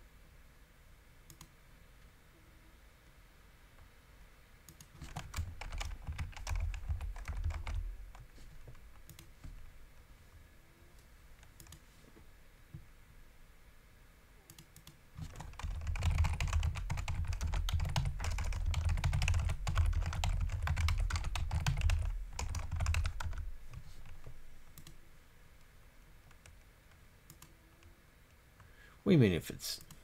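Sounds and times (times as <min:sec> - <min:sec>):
computer keyboard typing: 0:04.7 - 0:08.3, 0:14.5 - 0:24.2, 0:24.8 - 0:25.0, 0:27.3 - 0:27.6.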